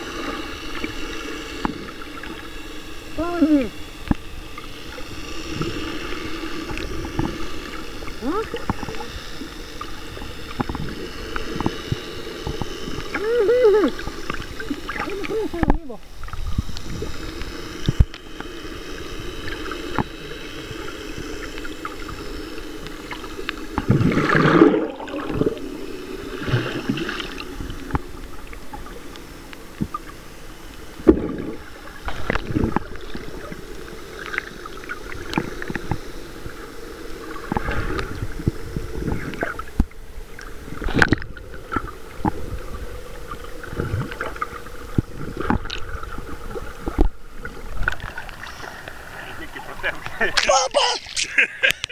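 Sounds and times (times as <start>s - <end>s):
steady hum: 0.0s - 51.9s
water gurgling underwater: 23.1s - 29.0s, 31.0s - 33.6s.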